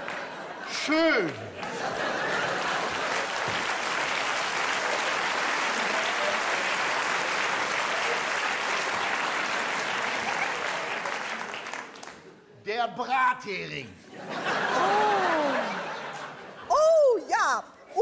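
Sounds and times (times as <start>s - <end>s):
audience applauding: 1.1s - 12.3s.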